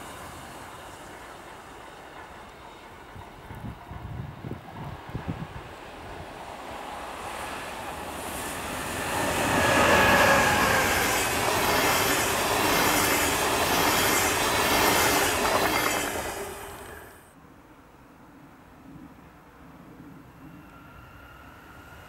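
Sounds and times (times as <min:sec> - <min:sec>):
train passing at speed: 0:00.0 - 0:17.4, 0:20.2 - 0:22.0
wheel and rail noise: 0:00.0 - 0:17.4.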